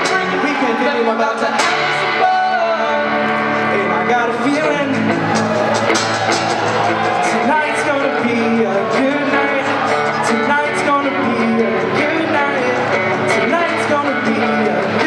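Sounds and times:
band playing guitars: 0.0s - 15.0s.

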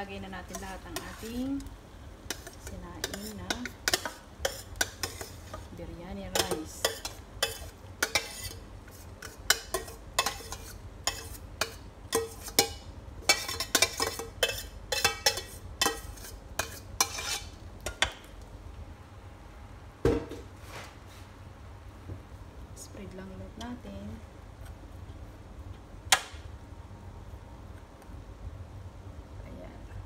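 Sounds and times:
metal spoon scraping pots: 0.4s - 1.7s, 2.3s - 5.7s, 6.3s - 17.5s.

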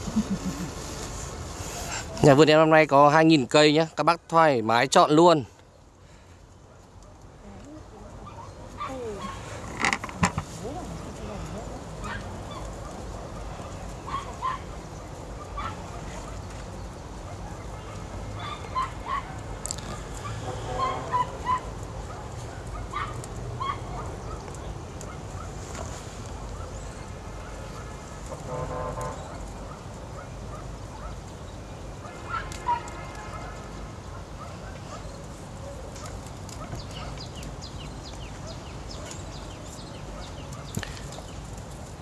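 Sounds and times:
poultry calling: 19.9s - 21.7s.

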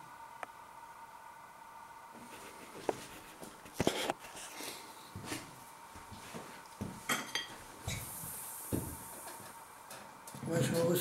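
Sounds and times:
cutlery clinking on plate: 7.1s - 7.6s.

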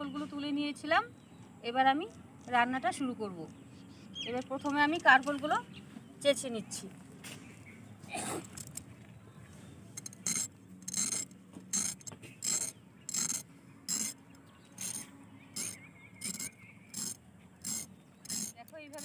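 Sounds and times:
gourd skin scraped on blade: 14.8s - 19.0s.

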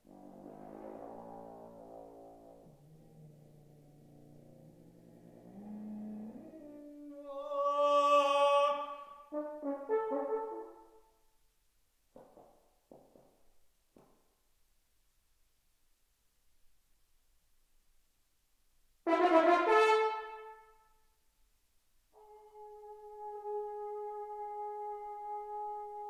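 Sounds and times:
solo french horn playing: 9.3s - 10.9s, 19.1s - 20.8s, 22.2s - 26.0s.

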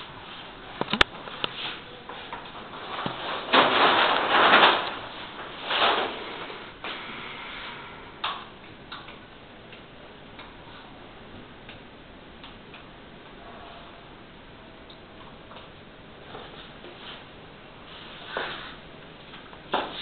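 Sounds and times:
sharp clicks and knocks: 0.8s - 1.6s
light ticking: 11.4s - 13.4s.

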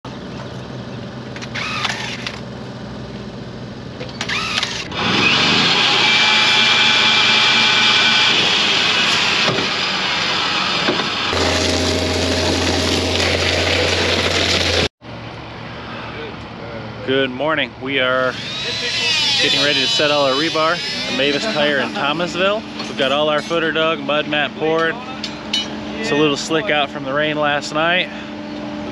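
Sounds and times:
loud machine whine: 1.4s - 2.4s, 4.0s - 15.9s, 18.1s - 28.9s
deep steady machine hum: 11.3s - 28.9s.

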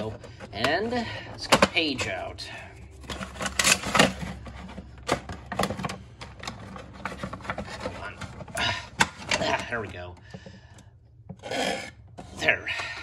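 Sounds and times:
cardboard and plastic crinkling: 0.0s - 8.6s.

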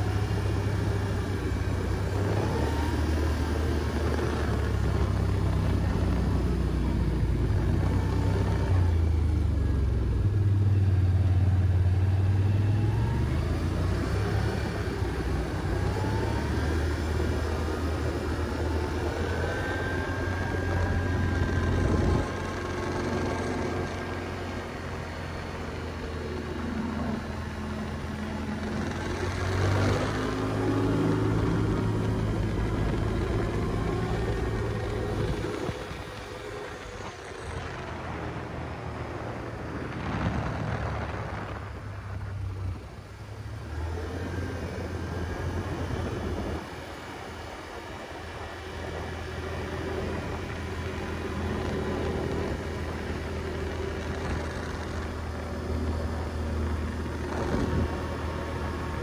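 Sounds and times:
quad engine revving: 12.2s - 41.6s.

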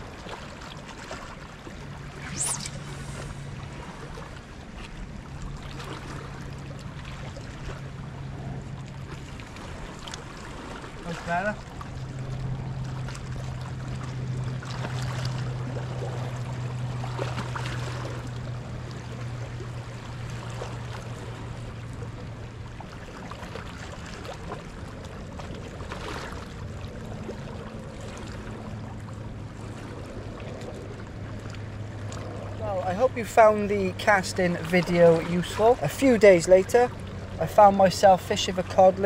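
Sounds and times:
steady low hum: 1.8s - 4.5s.

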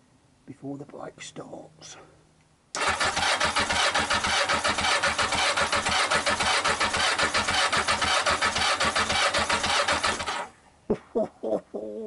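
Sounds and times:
engine cranking on starter: 2.8s - 10.5s.

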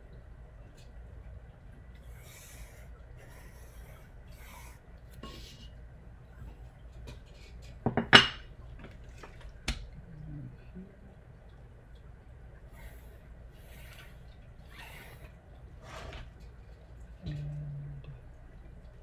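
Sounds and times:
pencil scratching on paper: 2.3s - 4.8s.

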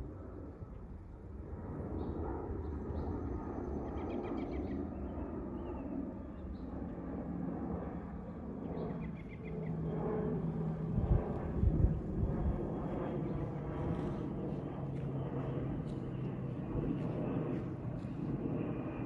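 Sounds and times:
aircraft rumbling overhead: 0.0s - 19.0s
small birds chirping: 8.7s - 9.9s.

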